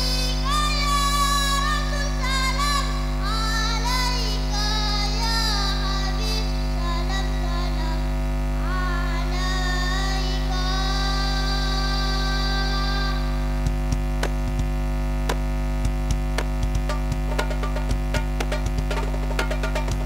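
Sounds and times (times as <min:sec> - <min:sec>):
woman singing into microphone: 0:00.0 - 0:13.6
steady low hum: 0:00.0 - 0:20.0
children singing: 0:08.7 - 0:13.4.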